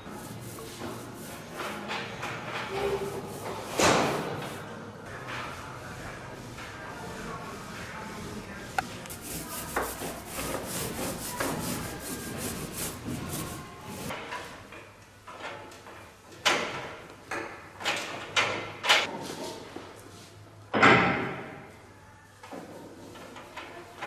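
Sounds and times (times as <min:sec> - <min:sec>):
brush scrubbing metal panel: 0:07.1 - 0:14.1.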